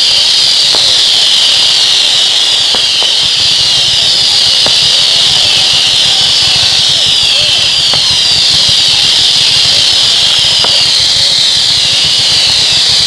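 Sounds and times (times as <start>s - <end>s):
firework pops: 0.0s - 13.0s
fireworks hissing: 0.0s - 13.0s.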